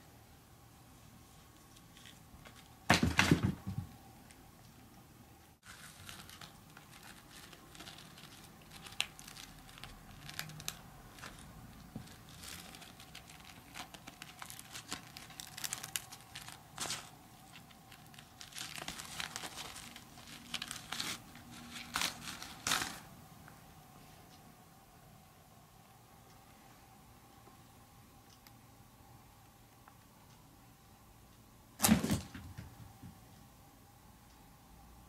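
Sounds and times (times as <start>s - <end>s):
straw hat crackling and rustling: 5.6s - 23.1s.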